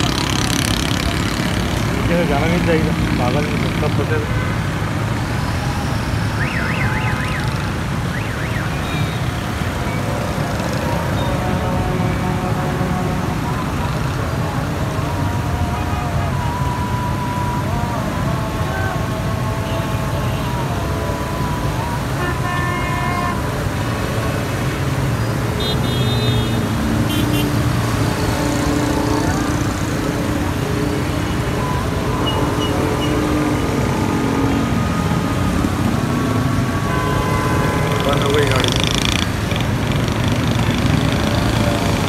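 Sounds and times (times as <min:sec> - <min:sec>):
car engines: 0:00.0 - 0:42.0
car horns tooting: 0:25.6 - 0:27.8, 0:36.4 - 0:42.0.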